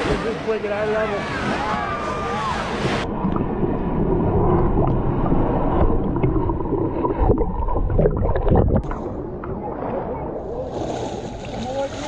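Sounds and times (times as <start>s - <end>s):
underwater rumble of churned water: 0.0s - 12.0s
bubbles popping and clicking: 5.8s - 9.6s.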